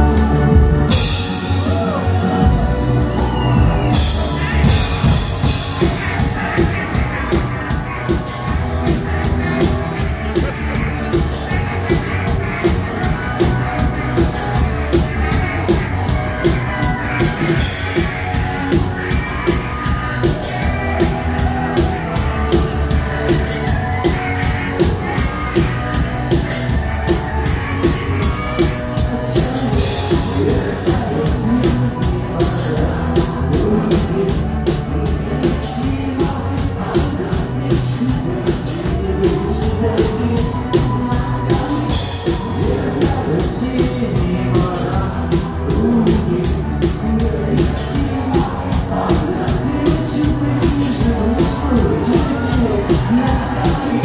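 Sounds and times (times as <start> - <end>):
electric guitars: 0.0 - 54.0
drum beat: 3.6 - 54.0
man singing into microphone: 28.6 - 54.0.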